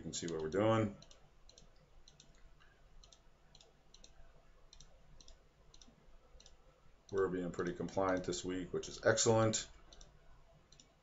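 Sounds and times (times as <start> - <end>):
low steady hum: 0.0 - 11.0
faint computer mouse clicks: 0.2 - 7.2, 9.9 - 11.0.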